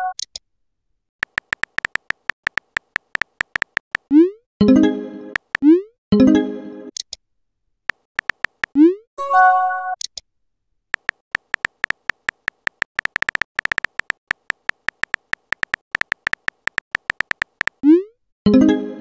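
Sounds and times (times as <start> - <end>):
phone keyboard tap clicks: 1.2 - 4.1, 7.9 - 8.8, 11.0 - 17.8
electronic app sound: 8.7 - 10.0.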